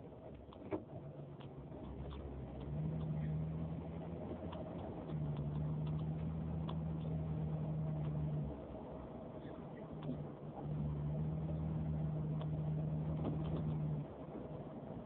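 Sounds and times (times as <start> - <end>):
car engine droning: 0.0 - 15.0
faint clicks: 0.3 - 3.5, 4.2 - 7.2.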